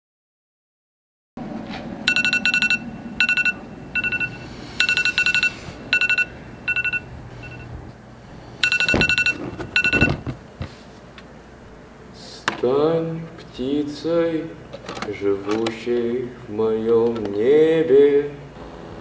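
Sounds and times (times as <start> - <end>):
alarm clock beeping: 2.1 - 7.7, 8.6 - 10.2
dull thump on alarm clock: 8.6 - 10.4.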